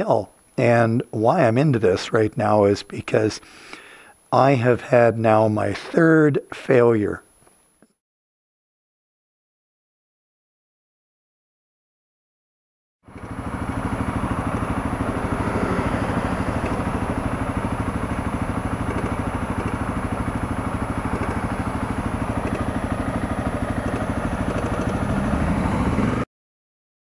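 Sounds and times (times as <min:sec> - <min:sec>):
motorcycle engine idling: 0:13.1 - 0:26.2.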